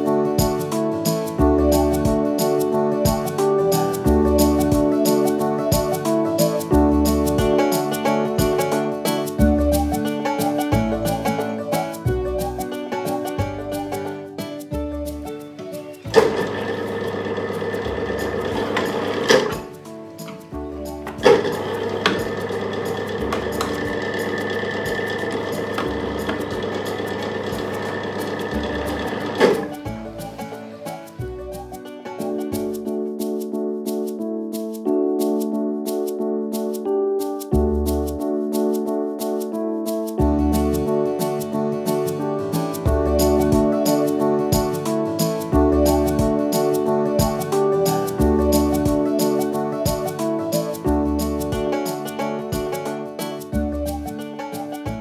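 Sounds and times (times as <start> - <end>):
guitar instrumental music: 0.0 - 55.0
machine motor running: 16.2 - 19.5, 21.2 - 29.7.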